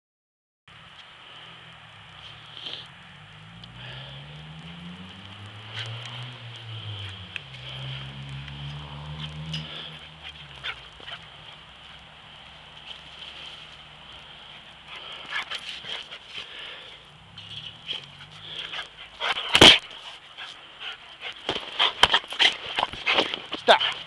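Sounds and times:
low drone: 0:00.8 - 0:20.1
scuffs and clicks in snow: 0:04.6 - 0:16.6, 0:17.4 - 0:24.0
small dog sounds: 0:18.0 - 0:24.0.

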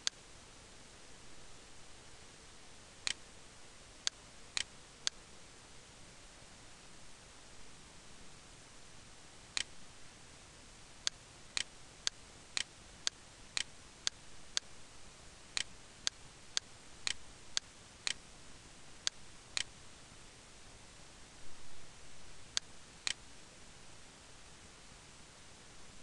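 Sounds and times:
computer mouse clicks: 0:16.6 - 0:18.2, 0:22.6 - 0:23.2.

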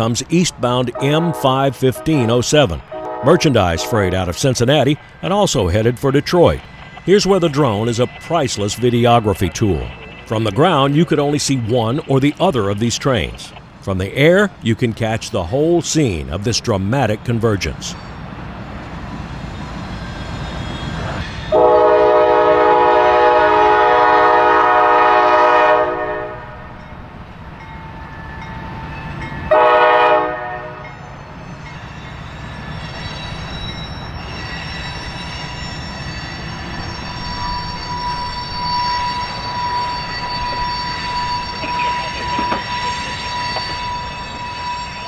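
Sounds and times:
wheel flanges squealing on track: 0:00.0 - 0:14.6, 0:18.9 - 0:23.2, 0:30.8 - 0:45.0
rumble of rolling freight cars: 0:00.0 - 0:45.0
locomotive air horn blasts: 0:00.9 - 0:04.2, 0:21.5 - 0:26.7, 0:29.5 - 0:30.9.

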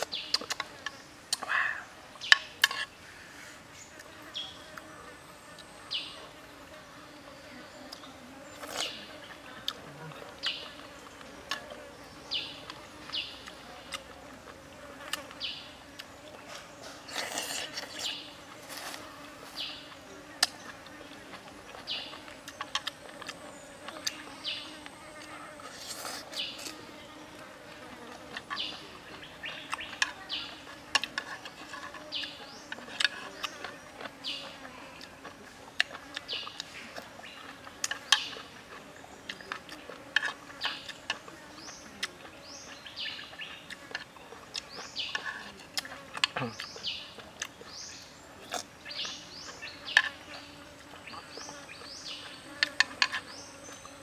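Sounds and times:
chewing and lip smacks: 0:41.9 - 0:42.4.

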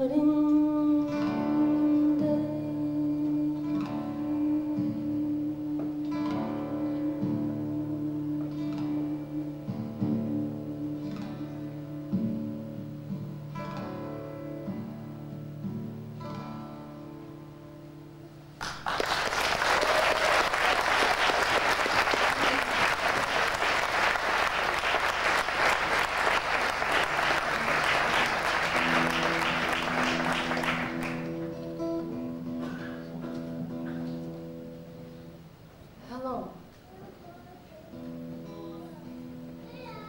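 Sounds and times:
acoustic guitar notes: 0:00.0 - 0:18.6, 0:21.8 - 0:40.0
audience applause: 0:18.6 - 0:31.6.

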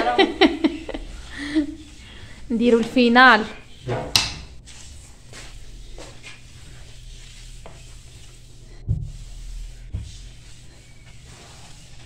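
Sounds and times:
faint scuffing: 0:04.7 - 0:06.8
cloth wiping granite countertop: 0:04.7 - 0:12.0.

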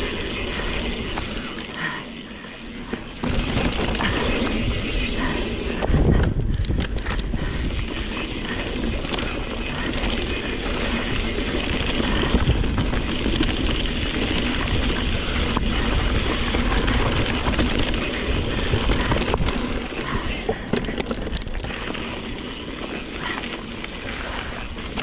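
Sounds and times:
bike knocking and rattling: 0:00.0 - 0:25.0
tyre noise on dirt trail: 0:00.0 - 0:25.0
wind buffeting microphone: 0:03.2 - 0:21.8.

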